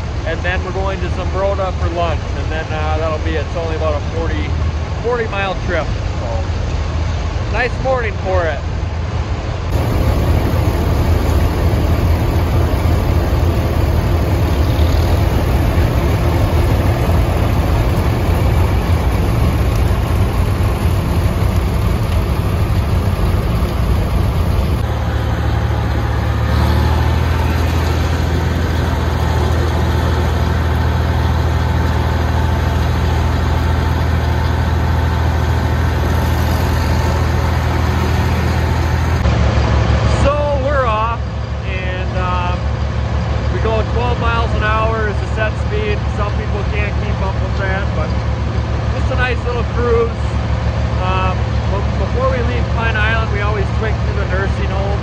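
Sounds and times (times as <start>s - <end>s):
tractor engines idling: 0.0s - 6.8s, 9.7s - 55.0s.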